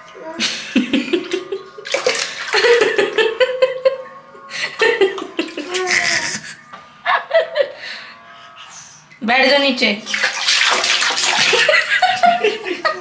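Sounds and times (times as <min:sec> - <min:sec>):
baby splashing water: 0:01.2 - 0:03.0, 0:05.3 - 0:06.2, 0:10.0 - 0:12.7
baby vocalising: 0:05.4 - 0:06.5.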